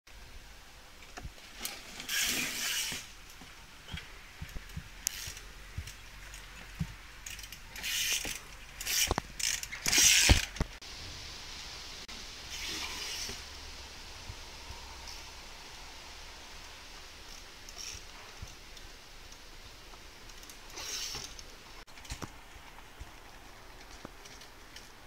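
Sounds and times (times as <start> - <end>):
bicycle freewheel ratchet clicking: 7.2 - 10.6, 17.3 - 18.1.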